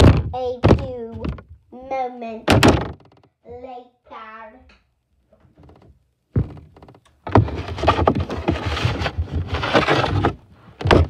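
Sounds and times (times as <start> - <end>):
thump: 0.0 - 1.5, 2.5 - 3.1, 10.8 - 11.0.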